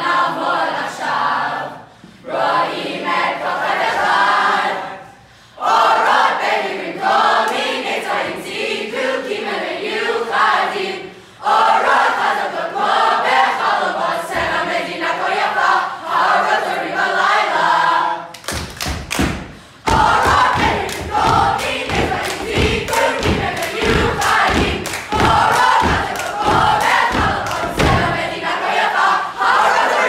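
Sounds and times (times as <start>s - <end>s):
teenagers chanting in unison: 0.0s - 18.3s, 19.4s - 30.0s
rhythmic thuds: 18.5s - 29.6s.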